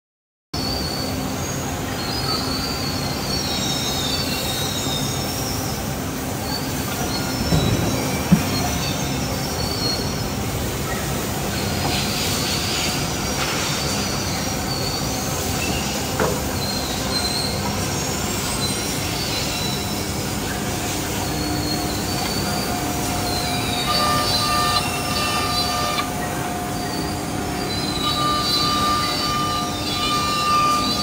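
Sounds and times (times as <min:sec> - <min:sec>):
router spindle whining: 0:21.2 - 0:31.0.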